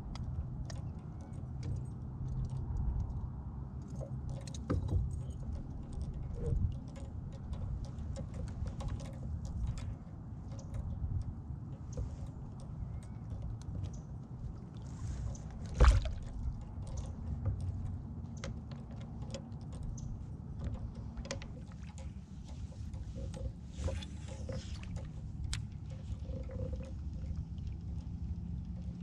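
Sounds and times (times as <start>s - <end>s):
low steady rumble: 0.0s - 29.0s
knocks and clicks on plastic kayak: 15.5s - 26.0s.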